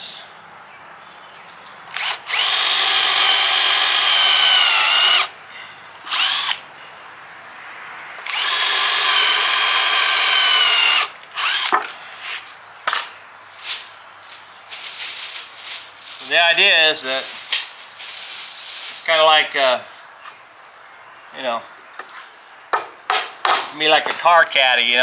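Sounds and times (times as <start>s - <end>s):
power drill boring through wood: 1.9s - 5.3s, 6.1s - 6.6s, 8.2s - 11.8s.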